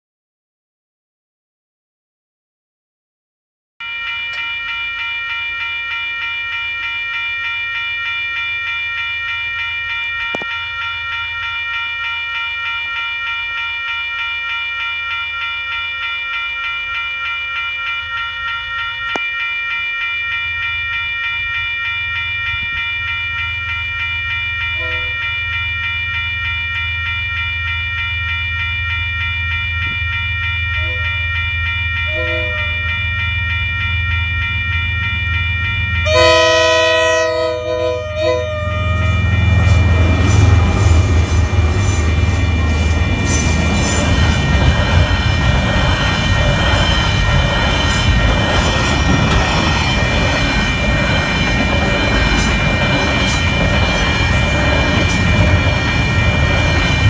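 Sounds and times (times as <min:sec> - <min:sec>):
electronic crossing bells ringing: 0:03.8 - 0:57.0
train horn blasts: 0:24.8 - 0:25.2, 0:30.8 - 0:31.1, 0:32.1 - 0:32.9, 0:36.0 - 0:43.0
train rumble: 0:35.0 - 0:57.0.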